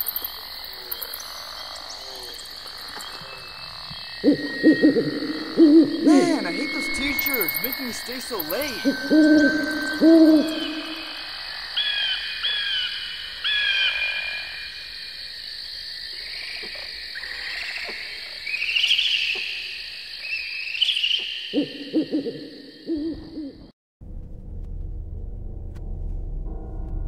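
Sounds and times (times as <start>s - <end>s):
owl hooting: 4.2s - 14.6s, 20.2s - 23.7s
high-pitched drone: 4.4s - 11.4s.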